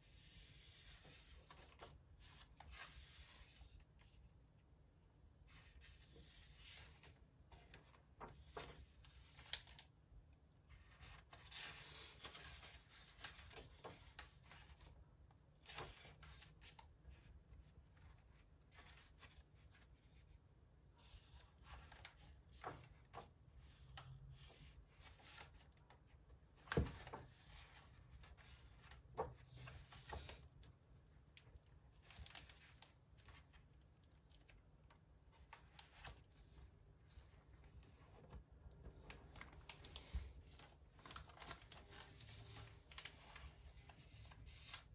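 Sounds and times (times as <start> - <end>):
book pages turning: 32.0 - 33.7, 37.1 - 44.9.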